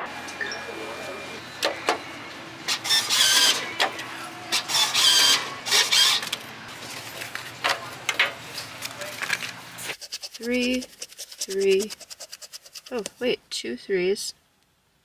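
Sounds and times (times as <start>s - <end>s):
vending machine whirring: 0.0s - 10.8s.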